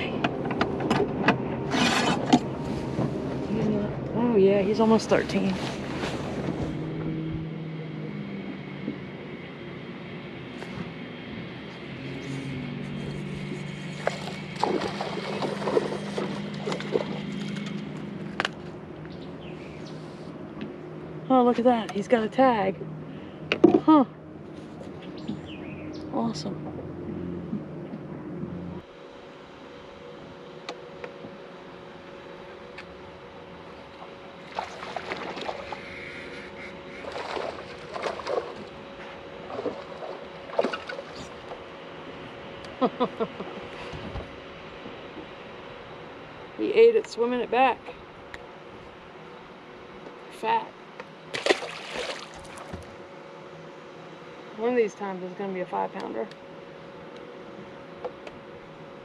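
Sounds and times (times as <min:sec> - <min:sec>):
electric trolling motor humming: 0:00.0 - 0:59.0
fish splashing and thrashing: 0:12.4 - 0:18.7, 0:33.7 - 0:41.9, 0:51.3 - 0:53.0.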